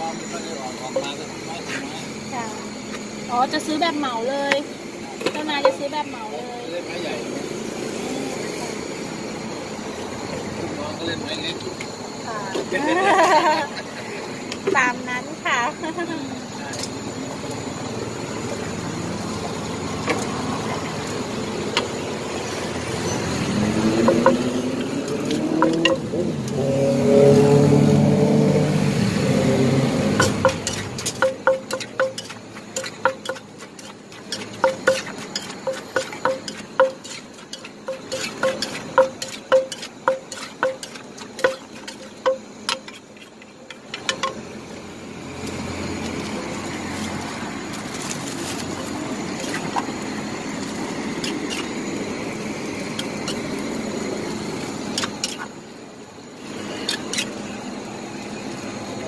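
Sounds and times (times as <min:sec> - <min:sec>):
pestle pounding in clay mortar: 0:23.6 - 0:26.1, 0:30.1 - 0:43.4
spoon clinking against mortar: 0:24.0 - 0:24.5, 0:25.4 - 0:26.0, 0:30.2 - 0:43.0
scraping while stirring: 0:30.1 - 0:44.4.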